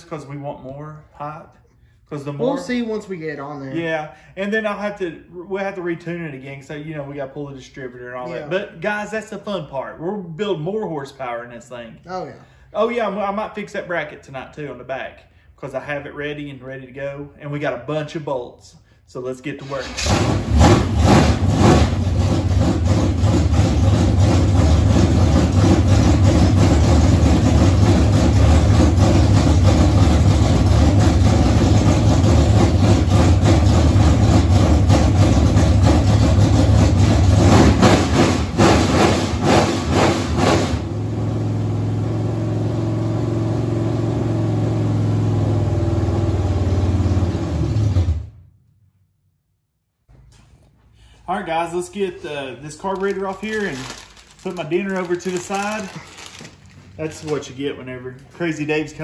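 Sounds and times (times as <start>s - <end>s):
car engine revving and idling: 20.0s - 48.4s.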